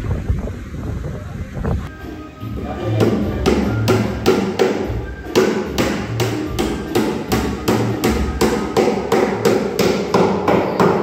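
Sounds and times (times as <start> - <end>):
background music with bass: 0.0 - 11.0
hammering on plywood: 3.0 - 11.0.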